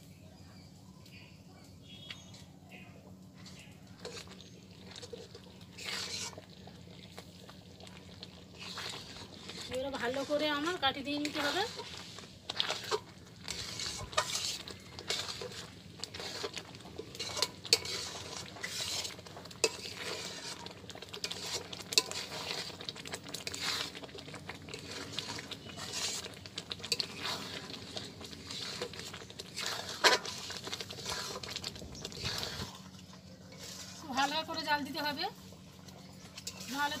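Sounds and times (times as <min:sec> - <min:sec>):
metal spatula scraping iron pan: 0:03.5 - 0:06.4, 0:08.5 - 0:24.1, 0:24.7 - 0:32.8, 0:33.4 - 0:34.6, 0:36.3 - 0:37.0.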